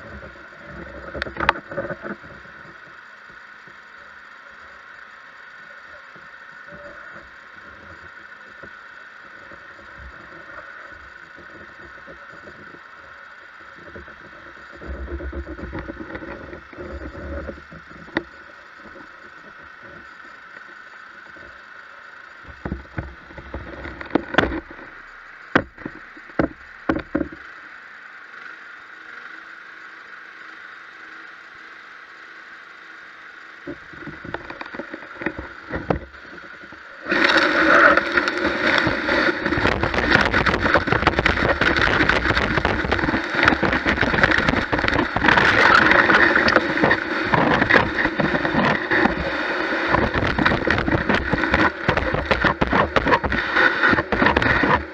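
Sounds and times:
vacuum whining: 33.7 - 54.9
debris sucked with crackling rush: 36.9 - 54.9.

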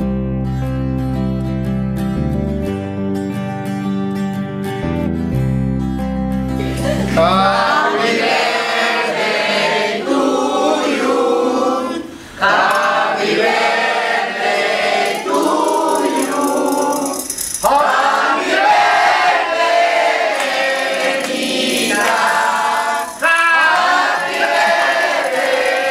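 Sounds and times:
guitar chord: 0.0 - 7.5
group singing a birthday song: 6.8 - 25.9.

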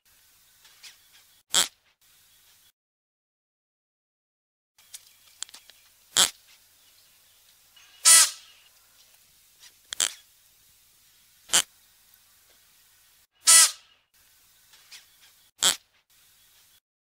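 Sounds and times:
antelope sharp calls: 7.8 - 8.7, 13.4 - 14.0.

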